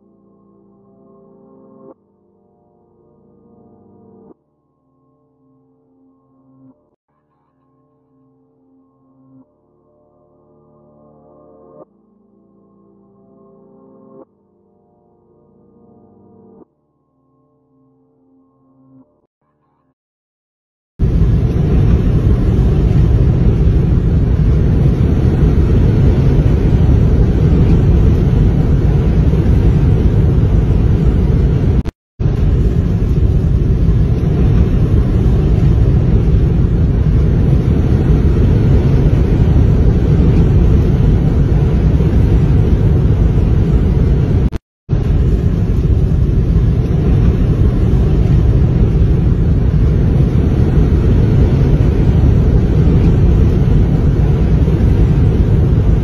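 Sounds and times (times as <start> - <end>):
wind and road noise in car: 21.0 - 56.0.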